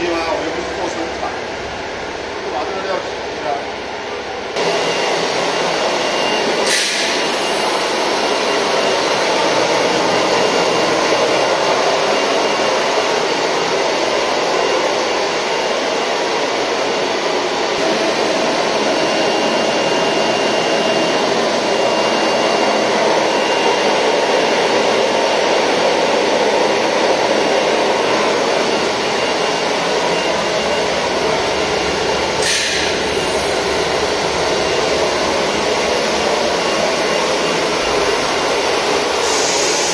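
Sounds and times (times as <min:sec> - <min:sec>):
short sharp hisses: 0:32.4 - 0:32.9, 0:39.2 - 0:39.9.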